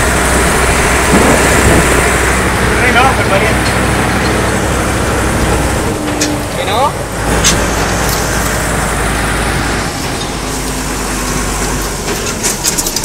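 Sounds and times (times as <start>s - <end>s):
tractor diesel engine rumbling: 0.0s - 13.0s
wind noise: 0.0s - 13.0s
rattle: 10.1s - 13.0s.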